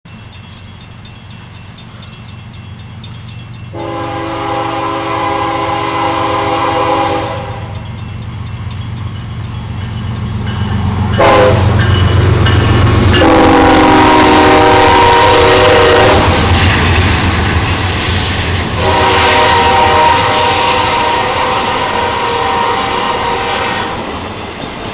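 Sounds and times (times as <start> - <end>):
train wheel noise: 0.1 - 24.9
locomotive air horn blasts: 3.7 - 7.8, 11.1 - 11.9, 13.2 - 16.5, 18.8 - 24.0.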